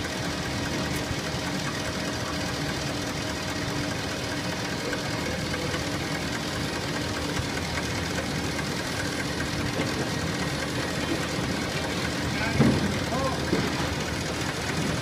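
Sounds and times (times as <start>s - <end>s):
machine mechanical clatter: 4.3s - 15.0s.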